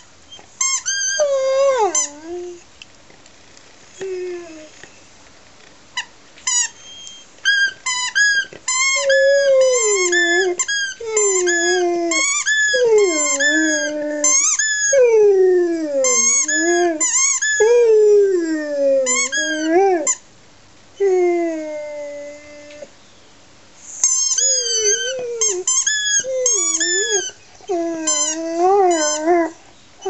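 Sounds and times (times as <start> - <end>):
dog yelping: 0.0 - 2.6, 6.6 - 15.1, 19.0 - 20.2, 24.0 - 29.6
dog howling: 1.0 - 2.6, 9.0 - 20.1, 21.0 - 22.9, 24.4 - 29.6.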